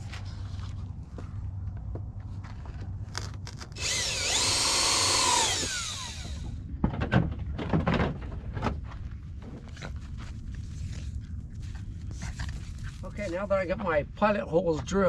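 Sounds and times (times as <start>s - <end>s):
cordless drill running: 3.7s - 6.6s
knocks and rattles: 6.3s - 9.6s.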